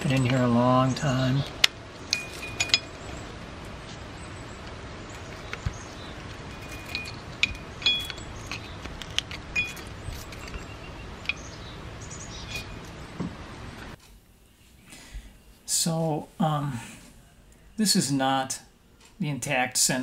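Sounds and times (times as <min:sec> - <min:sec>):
small metallic clinks and ticks: 0:02.1 - 0:03.2, 0:06.4 - 0:11.6.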